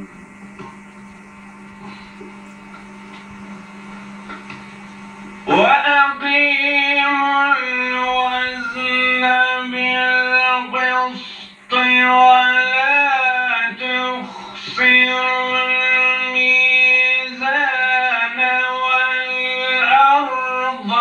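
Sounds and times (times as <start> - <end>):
electrical hum: 0.0 - 21.0
man chanting into microphone: 5.4 - 21.0.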